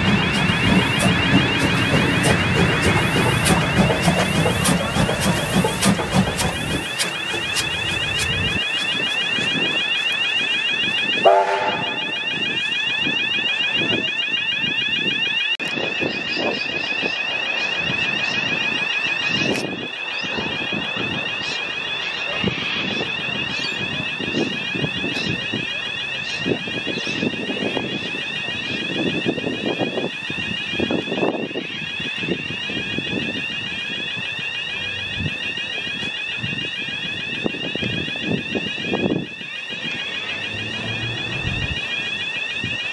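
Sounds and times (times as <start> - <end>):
passing train rumble: 0.0 - 10.0, 11.1 - 12.5, 34.4 - 36.1, 37.4 - 42.9
level crossing bells ringing: 0.0 - 42.9.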